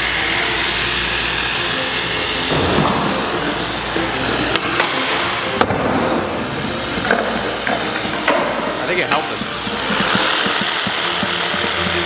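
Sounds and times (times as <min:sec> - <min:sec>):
skateboard wheels rolling on concrete: 0:02.4 - 0:12.0
sharp knocks: 0:05.6 - 0:12.0.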